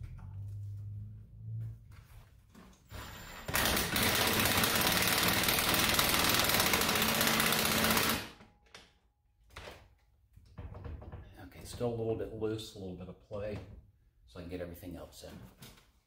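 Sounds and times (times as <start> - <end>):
impact driver hammering screw into wood: 3.5 - 8.4.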